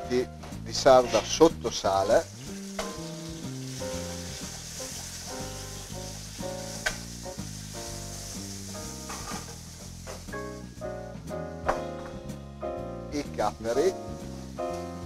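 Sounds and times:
guitar music: 0.0 - 15.0
fish sizzling in hot oil: 1.4 - 10.8, 13.3 - 15.0.

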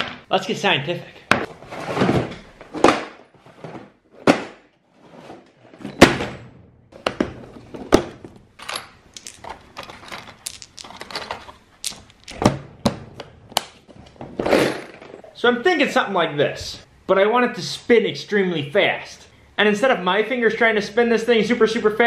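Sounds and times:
small metal nuts clinking: 8.6 - 12.4.

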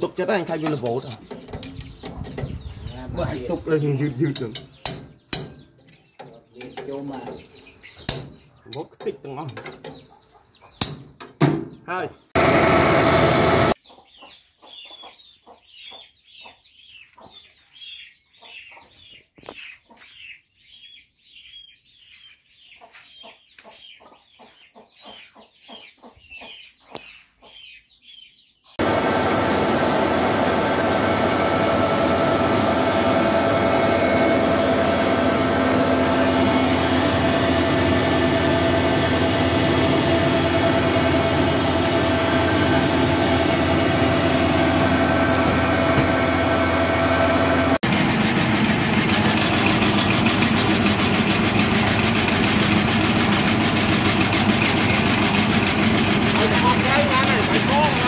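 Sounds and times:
chickens chirping: 0.0 - 12.3, 13.7 - 28.8, 29.5 - 47.9
rice milling machine humming: 12.4 - 13.8, 28.8 - 58.0.

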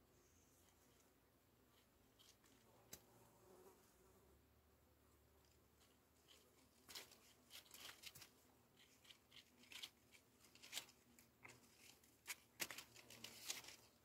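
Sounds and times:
dry crackling and rustling: 5.4 - 14.0.

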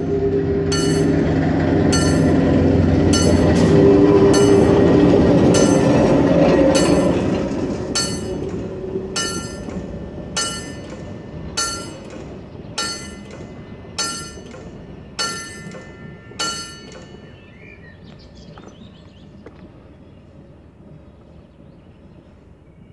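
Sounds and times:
electric railcar passing: 0.0 - 22.9
level-crossing bell ringing: 0.7 - 8.6, 9.2 - 10.9, 11.6 - 12.1, 14.0 - 14.5, 15.2 - 17.6.

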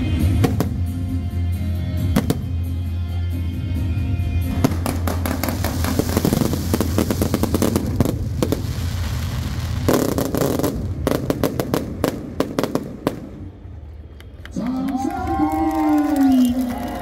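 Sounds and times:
fireworks bangs and crackling: 0.2 - 1.1, 2.1 - 2.6, 4.4 - 13.8.

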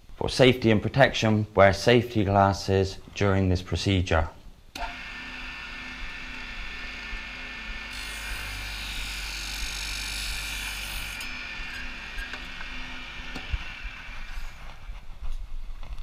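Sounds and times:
cut-off saw cutting hose: 4.8 - 14.9.

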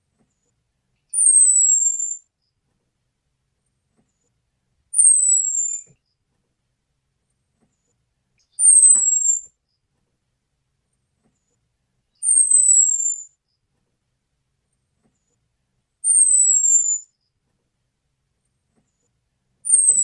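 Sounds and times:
thrush high whistling call: 16.1 - 17.0, 19.7 - 20.0.

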